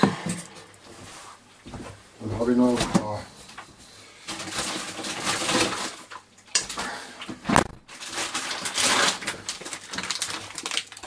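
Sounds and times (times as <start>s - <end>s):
plastic bag rustling: 4.0s - 11.0s.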